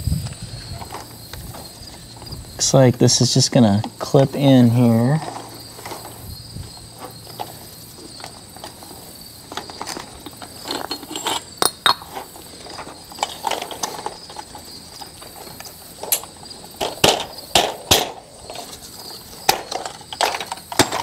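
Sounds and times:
metal parts clicking and clinking: 9.5s - 21.0s.

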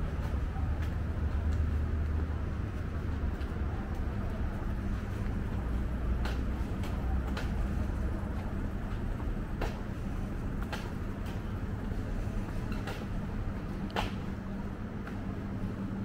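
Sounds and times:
low mechanical hum: 0.0s - 16.0s
footsteps on concrete: 8.3s - 13.2s.

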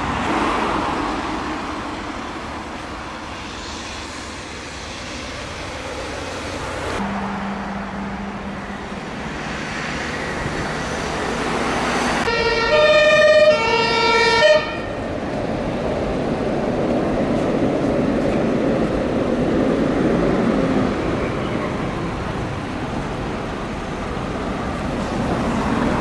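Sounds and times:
street traffic: 0.0s - 26.0s
two-tone fire engine siren: 12.3s - 14.9s.

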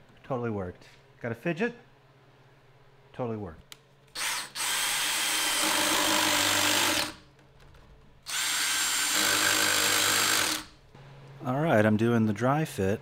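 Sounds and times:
cordless drill driving screws: 4.2s - 7.2s, 8.3s - 10.7s.

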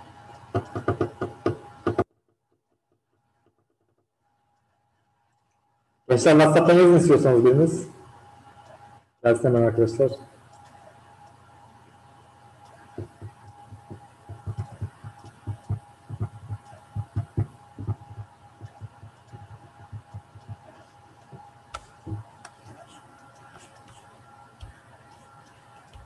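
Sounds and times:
faint steady hum: 0.0s - 26.0s
sharp clicks: 10.5s - 11.4s
dull thumps: 12.9s - 20.7s.

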